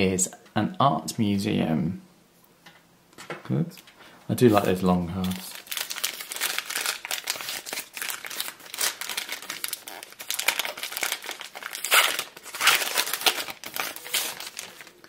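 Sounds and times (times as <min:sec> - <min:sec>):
foil wrapper crinkling and tearing: 0:04.6 - 0:15.0.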